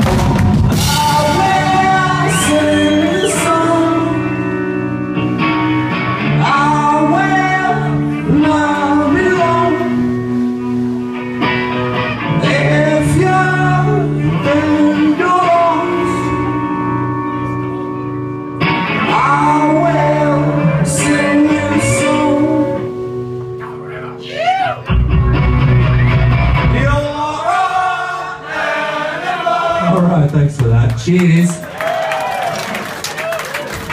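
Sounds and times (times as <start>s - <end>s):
drum kit with cymbal crashes: 0.0s - 1.7s
electric guitars: 0.0s - 27.4s
person singing: 0.7s - 4.6s, 6.4s - 10.2s, 12.3s - 17.3s, 19.0s - 23.0s.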